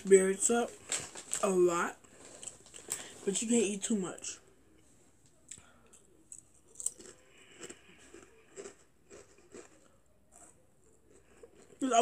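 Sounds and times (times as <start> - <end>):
chewing fries: 0.6 - 3.4, 5.3 - 12.0.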